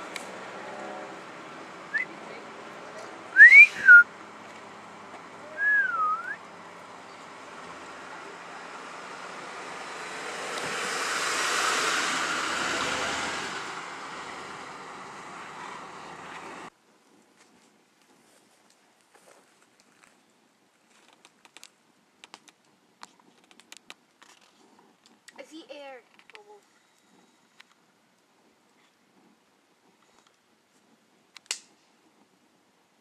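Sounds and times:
rushing noise: 0:00.0 - 0:16.7
person whistling: 0:03.4 - 0:04.1, 0:05.6 - 0:06.4.

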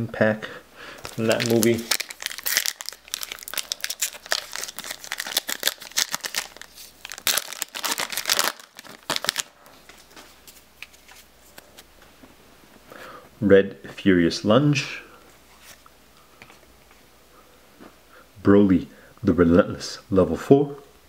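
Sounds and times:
foil wrapper crinkling and tearing: 0:01.0 - 0:09.6.

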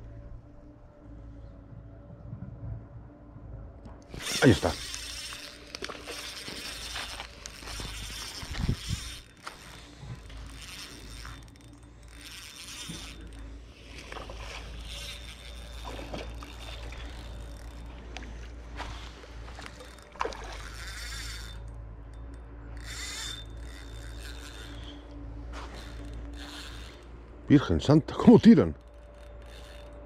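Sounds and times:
steady low rumble: 0:00.0 - 0:20.8
fly reel ratcheting: 0:04.0 - 0:30.0.

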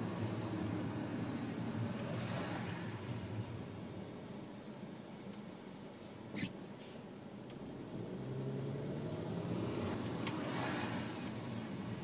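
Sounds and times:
road noise: 0:00.0 - 0:12.0
car engine accelerating: 0:07.5 - 0:11.3.

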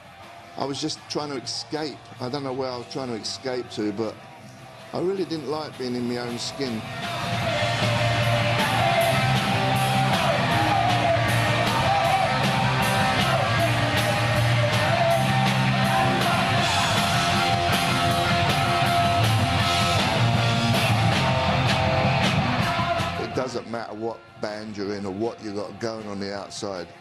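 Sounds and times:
drums: 0:05.0 - 0:23.7
electric guitar: 0:06.9 - 0:23.2.

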